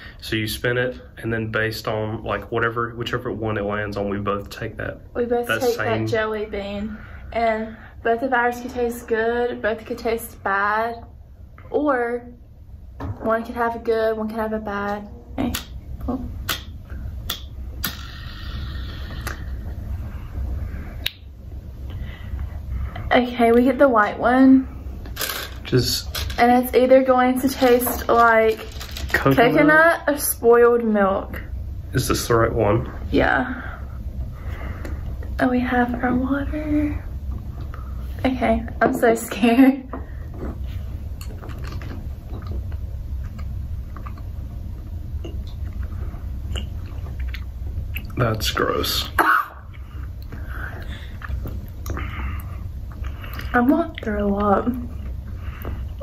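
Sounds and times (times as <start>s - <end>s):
low background rumble: 0.0s - 56.0s
steady low hum: 0.0s - 56.0s
people chewing: 40.4s - 48.2s, 49.7s - 54.0s.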